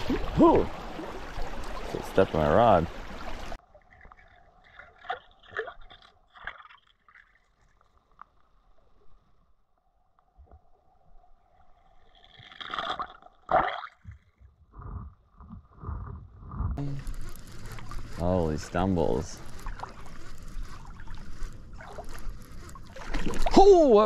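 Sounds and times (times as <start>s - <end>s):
stream rushing: 0.0s - 3.6s.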